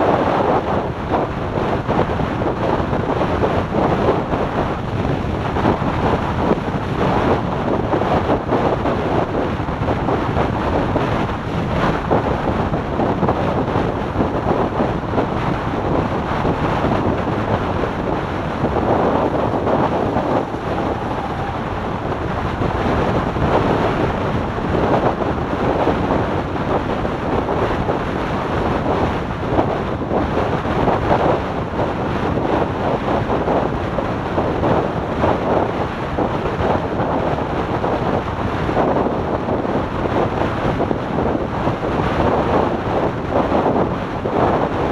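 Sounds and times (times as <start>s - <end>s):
wind buffeting microphone: 0.0s - 44.9s
road noise: 14.9s - 27.2s.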